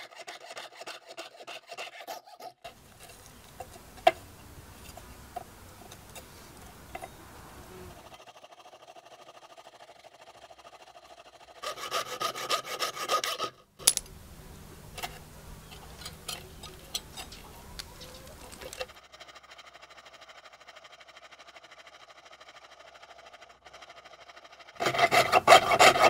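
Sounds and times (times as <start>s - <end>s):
saw cutting thin metal: 0.0s - 3.7s, 8.0s - 13.6s, 23.8s - 26.0s
quiet scraping with ticks: 2.7s - 8.2s, 13.2s - 20.3s.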